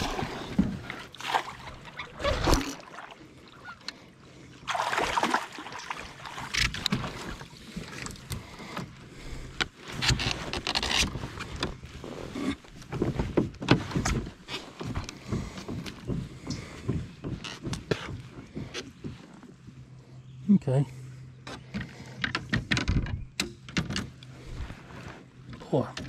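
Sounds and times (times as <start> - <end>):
fish splashing in water: 0.0 - 3.8, 4.6 - 8.2.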